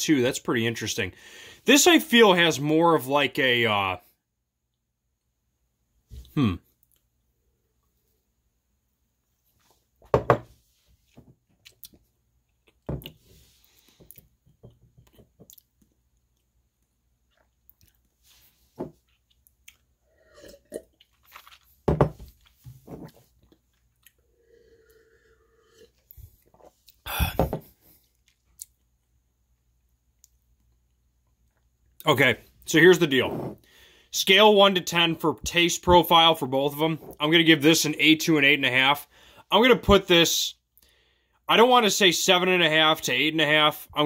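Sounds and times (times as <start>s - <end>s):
glass jars knocking on countertop: 10.1s - 10.5s, 21.9s - 22.2s
sipping and swallowing: 19.3s - 21.8s.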